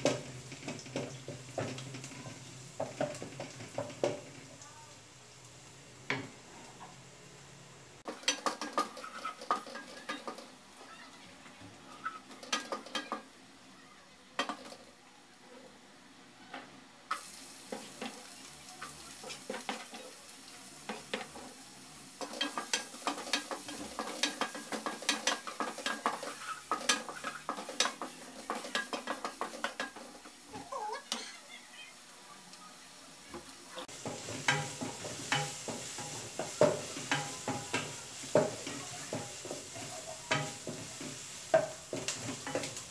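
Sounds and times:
onion sizzling in a pan: 0.0s - 42.9s
spatula scraping a pan: 8.0s - 10.5s, 20.8s - 31.5s, 33.8s - 42.9s.

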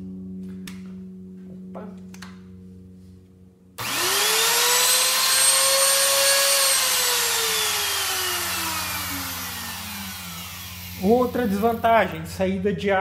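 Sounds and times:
router motor whining: 3.8s - 12.0s.

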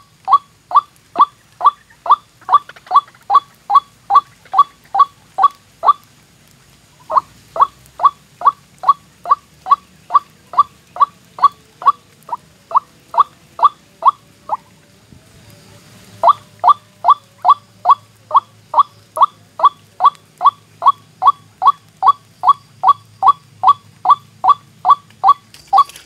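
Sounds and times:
waterhen short sharp calls: 0.0s - 6.1s, 7.0s - 14.7s, 16.2s - 26.0s.

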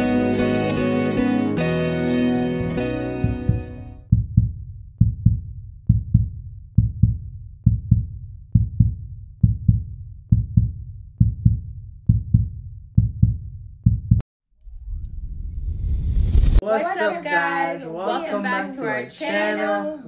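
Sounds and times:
heartbeat thumps: 3.2s - 14.2s.

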